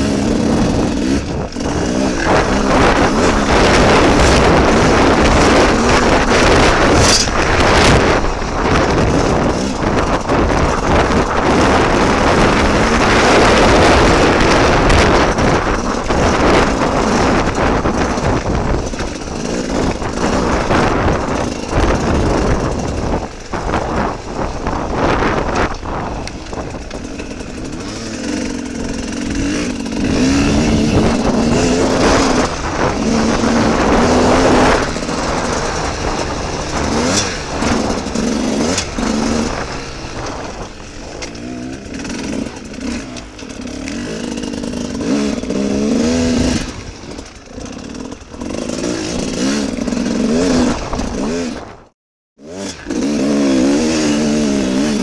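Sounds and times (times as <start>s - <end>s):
dirt bike engine revving: 0.0s - 55.0s
heavy wind noise: 0.0s - 55.0s.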